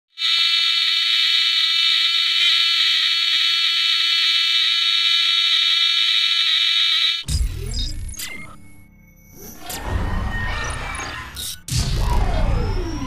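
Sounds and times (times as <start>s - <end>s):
electric arc buzzing: 0.2s - 7.2s.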